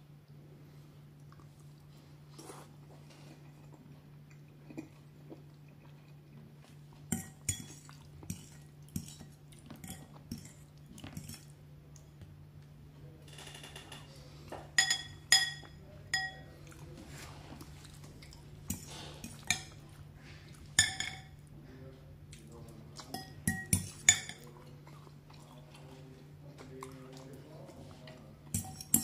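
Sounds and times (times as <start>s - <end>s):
fork clinking on ceramic bowl: 14.8s - 16.5s, 20.8s - 21.4s, 23.1s - 24.4s, 28.5s - 29.0s.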